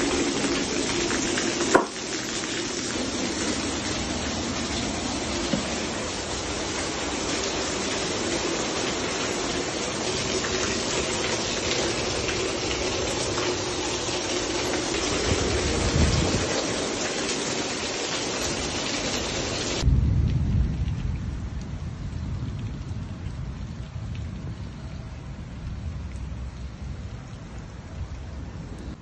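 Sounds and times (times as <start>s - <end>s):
hail and rain pelting: 0.0s - 27.2s
low rumble: 19.8s - 29.0s.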